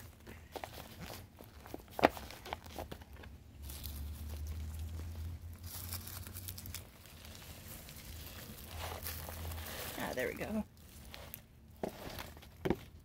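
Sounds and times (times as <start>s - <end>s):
plastic pot crinkling and knocking: 0.0s - 13.0s
leaves rustling: 3.6s - 11.4s.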